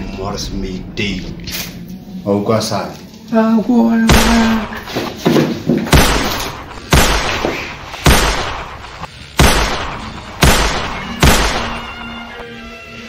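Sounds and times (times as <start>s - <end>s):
pistol shots: 4.1s - 4.9s, 5.9s - 12.2s.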